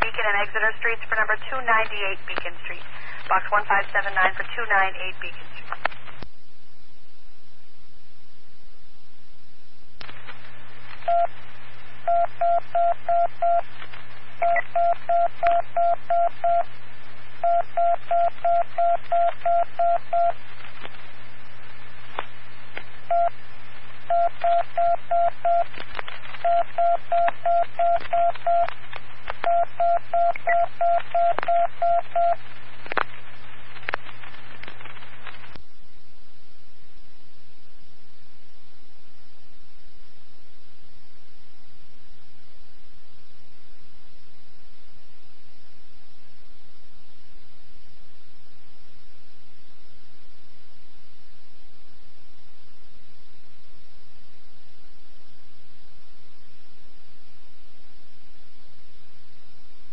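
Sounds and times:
radio beeps: 0:00.0 - 0:05.7, 0:11.0 - 0:11.3, 0:29.4 - 0:32.4
radio hum: 0:00.0 - 0:06.3, 0:10.0 - 0:35.6.

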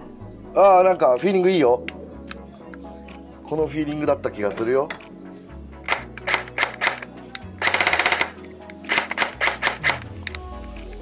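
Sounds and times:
airsoft gun firing: 0:05.9 - 0:10.1.

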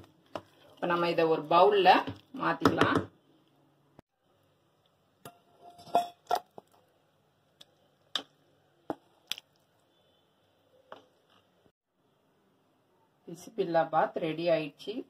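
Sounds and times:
metal ladle clinking on pot: 0:05.2 - 0:06.6.

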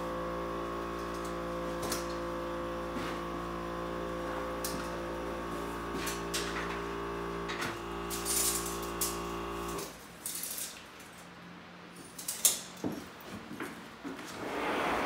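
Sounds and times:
machine hum: 0:00.0 - 0:09.8.

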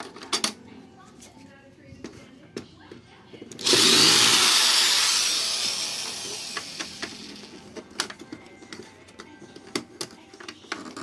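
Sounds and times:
cordless drill running: 0:03.6 - 0:07.4.

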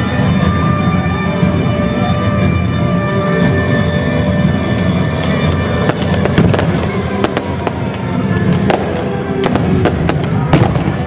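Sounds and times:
dramatic music: 0:00.0 - 0:11.0
sharp cracks and bangs: 0:05.2 - 0:11.0.

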